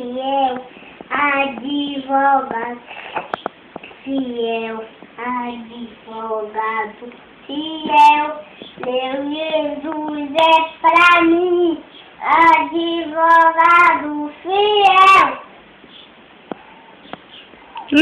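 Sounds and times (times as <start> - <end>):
boy singing unaccompanied: 0.0 - 2.9, 4.0 - 15.5.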